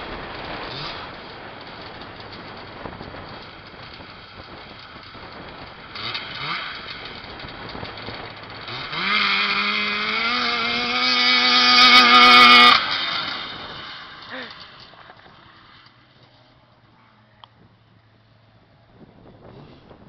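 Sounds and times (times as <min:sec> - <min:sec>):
two-stroke engine revving: 0:00.0 - 0:16.0.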